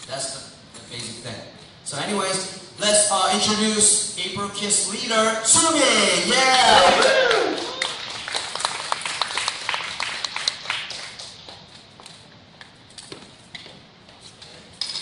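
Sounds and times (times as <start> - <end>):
audience clapping: 6.7 - 11.8.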